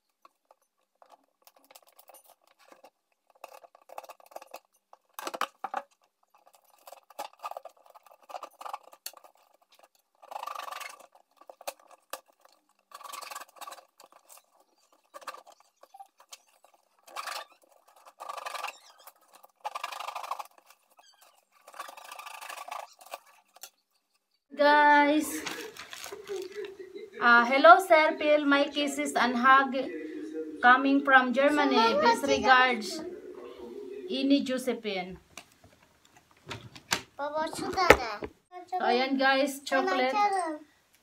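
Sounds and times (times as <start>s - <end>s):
packing tape and cardboard tearing: 0.2s - 23.8s, 25.3s - 26.7s.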